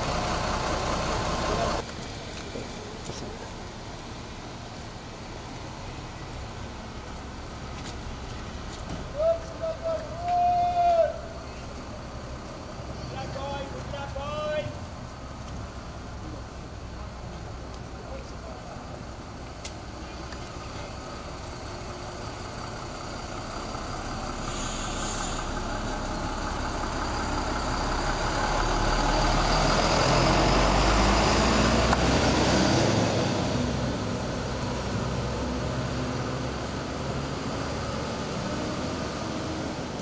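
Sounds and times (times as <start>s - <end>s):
bus engine passing by: 0.0s - 40.0s
brief hiss: 24.4s - 25.6s.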